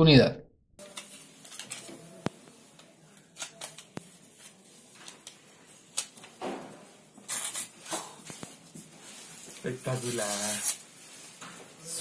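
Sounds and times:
paper rustling swishes: 7.3s - 11.8s.

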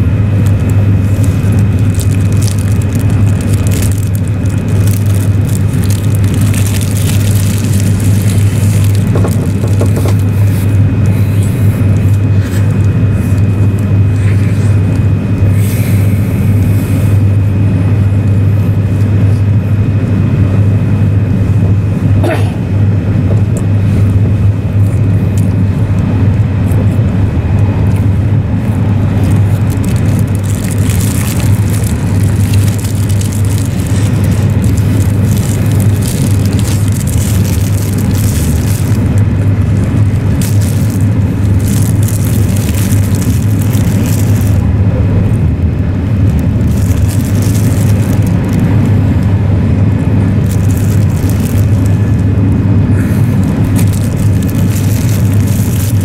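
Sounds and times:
train cabin rumble: 0.0s - 56.0s
plastic wrapper crinkling: 0.4s - 10.7s, 29.1s - 49.3s, 50.1s - 52.4s, 53.2s - 56.0s.

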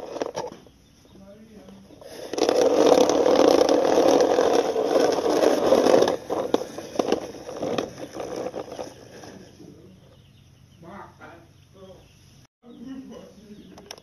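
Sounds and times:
plastic wheels scraping on concrete: 0.0s - 10.3s.

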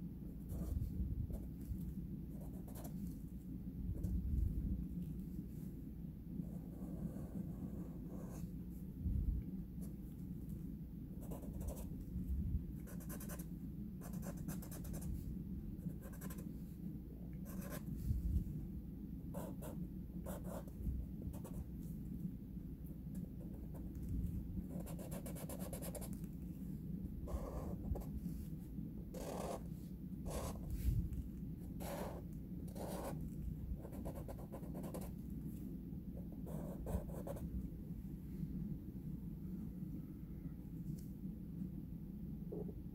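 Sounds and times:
steady low hum: 0.0s - 42.9s
marker scratching on paper: 0.5s - 1.5s, 2.3s - 3.2s, 11.2s - 11.9s, 12.8s - 15.2s, 15.9s - 16.4s, 17.5s - 17.9s, 24.7s - 26.2s, 27.3s - 28.2s, 29.1s - 30.9s, 31.8s - 33.2s, 33.8s - 35.1s, 36.4s - 37.4s.

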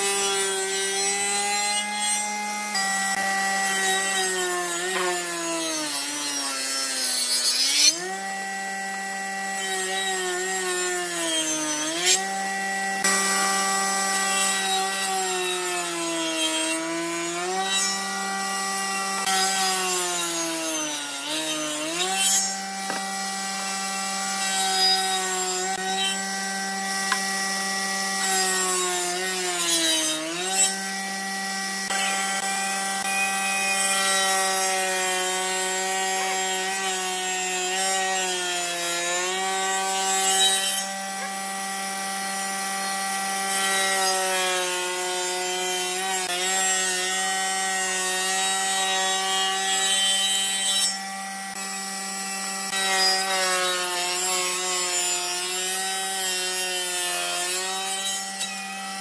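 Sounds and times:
table saw cutting wood: 0.0s - 59.0s.

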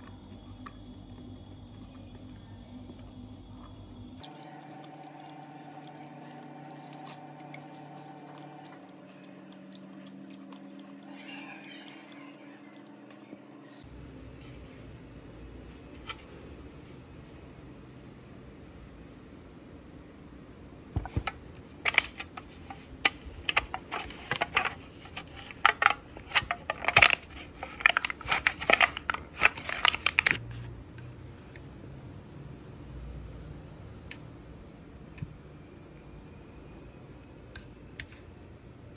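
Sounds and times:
foil lid crinkling: 23.4s - 30.4s.

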